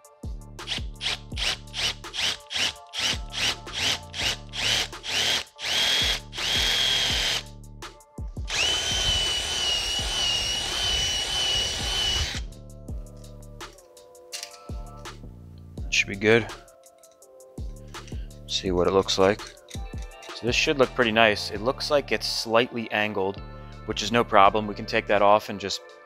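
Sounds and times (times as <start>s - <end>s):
cordless drill boring through steel: 0.7s - 7.4s, 8.5s - 12.5s.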